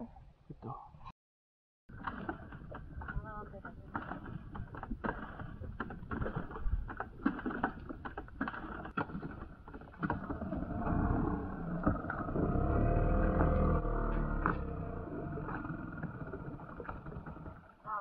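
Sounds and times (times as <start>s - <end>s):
boat motor running: 9.7s - 18.0s.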